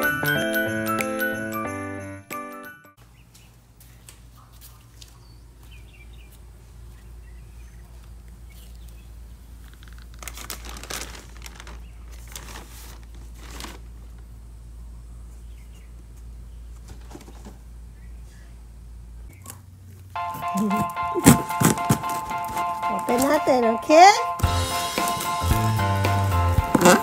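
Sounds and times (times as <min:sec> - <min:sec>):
plastic and cardboard crinkling: 0:08.0 - 0:14.4, 0:16.7 - 0:17.7, 0:20.6 - 0:23.7, 0:24.6 - 0:27.0
steady low hum: 0:11.8 - 0:20.2.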